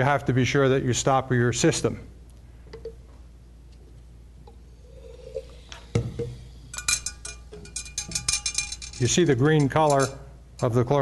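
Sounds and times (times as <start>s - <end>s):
light glass clinks: 6.2s - 10.2s.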